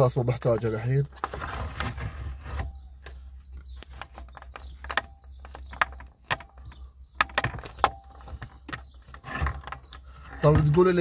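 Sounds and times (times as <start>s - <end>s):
faint bird chirps: 0.0s - 11.0s
plastic clicks and knocks: 3.0s - 11.0s.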